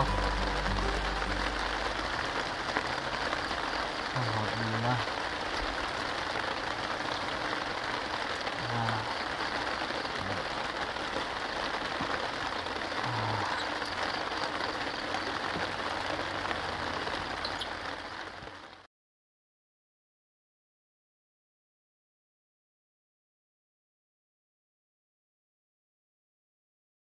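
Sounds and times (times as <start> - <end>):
rain on a plastic tarp: 0.0 - 18.9.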